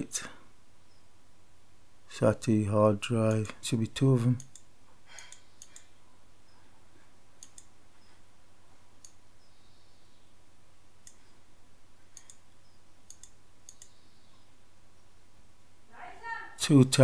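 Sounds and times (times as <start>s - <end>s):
faint low hum: 0.0s - 17.0s
computer mouse clicking: 4.4s - 6.0s, 7.4s - 8.1s, 9.0s - 9.2s, 11.0s - 11.4s, 12.1s - 14.0s.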